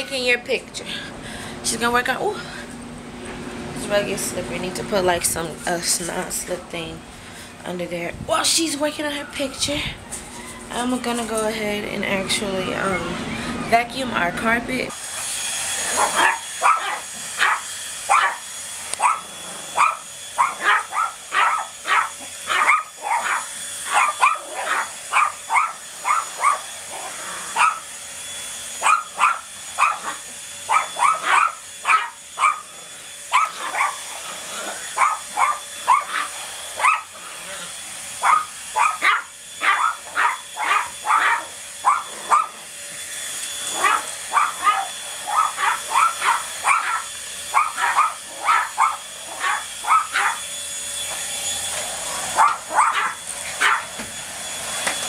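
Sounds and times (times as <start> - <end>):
vacuum motor whine: 0.0 - 55.0
small dog barking: 16.0 - 18.4, 19.0 - 27.8, 28.8 - 32.7, 33.3 - 34.0, 34.6 - 37.2, 38.2 - 42.6, 43.8 - 50.4, 52.4 - 53.9.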